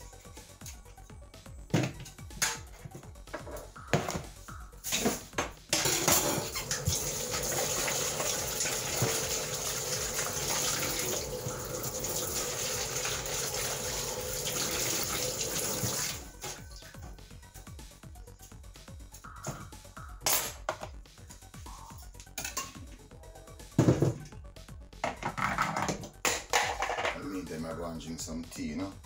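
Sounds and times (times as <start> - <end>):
tap running into metal sink: 6.6 - 11.2.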